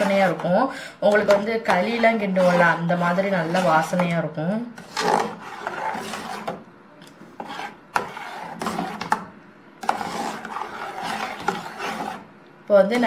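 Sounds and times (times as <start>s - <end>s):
spoon scraping a steel pot: 0.0s - 0.5s, 1.2s - 4.1s, 9.8s - 12.3s.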